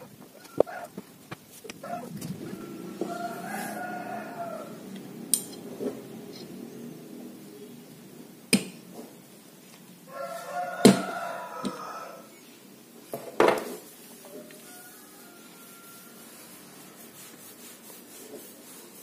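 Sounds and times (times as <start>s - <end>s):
animal calling: 1.7s - 4.9s.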